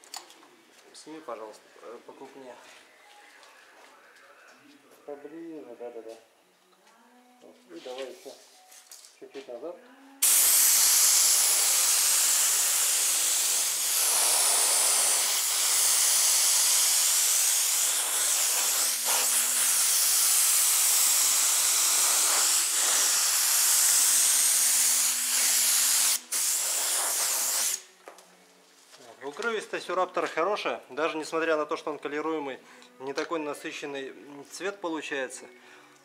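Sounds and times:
spray gun hissing: 10.2s - 27.9s.

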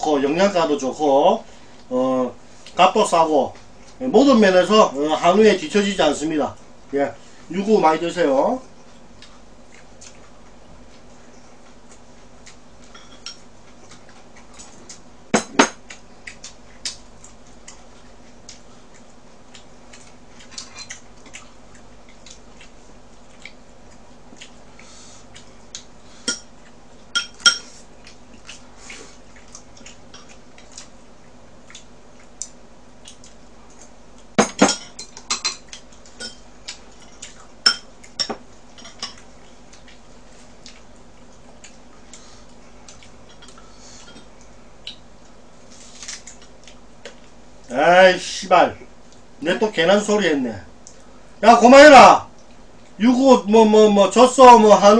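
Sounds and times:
faint steady hum: 0.0s - 54.9s
utensils clinking against dishes: 12.9s - 13.4s, 27.2s - 27.8s, 36.2s - 36.4s.

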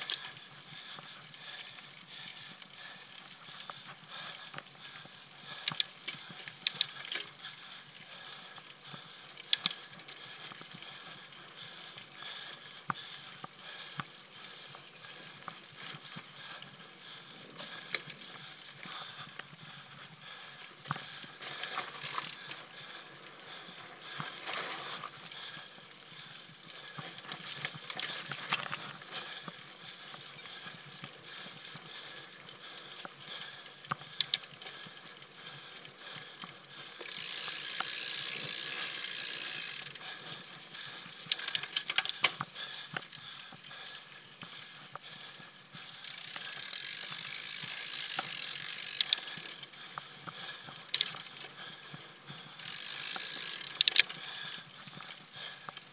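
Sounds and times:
bike rattling over rough ground: 0.0s - 55.9s
bike freewheel buzzing: 21.6s - 22.5s, 37.0s - 40.2s, 46.0s - 49.6s, 50.9s - 51.5s, 52.5s - 54.4s.

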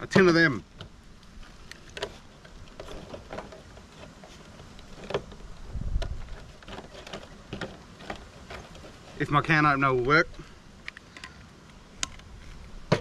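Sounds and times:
wind rumble on microphone: 5.4s - 6.6s.

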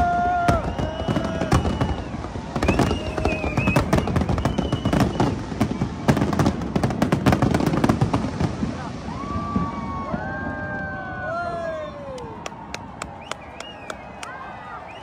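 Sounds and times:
fireworks bangs and crackling: 0.0s - 13.2s.

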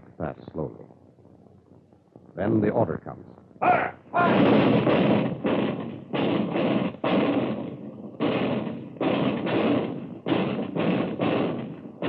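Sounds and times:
anti-aircraft cannon firing: 4.2s - 12.0s.

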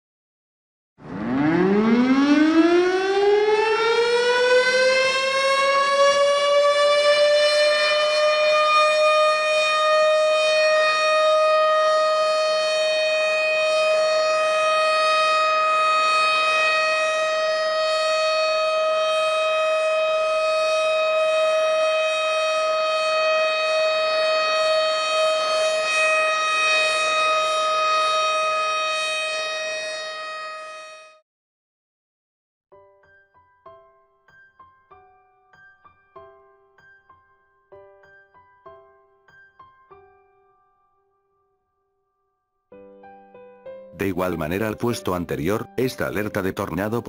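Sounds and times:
tornado siren wailing: 1.0s - 31.2s.

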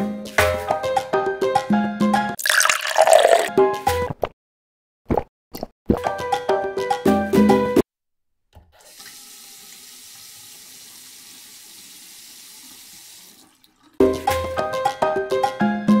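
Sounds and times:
bright music with percussion: 0.0s - 2.4s, 14.0s - 16.0s
water running from a tap: 2.4s - 3.5s, 8.8s - 14.4s.

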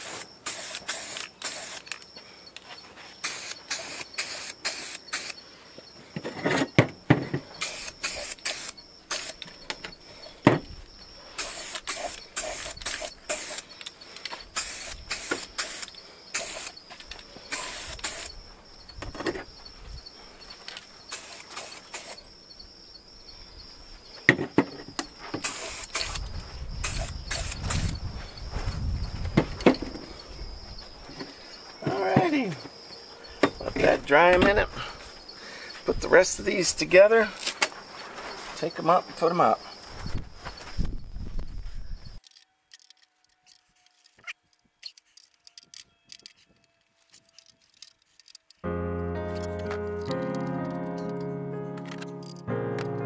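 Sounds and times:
spray can hissing: 0.0s - 1.9s, 3.2s - 5.4s, 7.6s - 9.4s, 11.4s - 13.8s, 14.5s - 16.8s, 17.5s - 18.4s, 21.1s - 22.2s, 25.4s - 26.2s, 26.8s - 28.0s.

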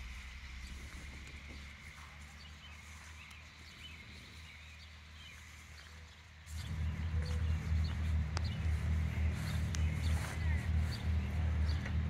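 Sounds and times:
low rumble: 0.0s - 4.4s, 6.5s - 12.0s
low steady hum: 0.0s - 12.0s.

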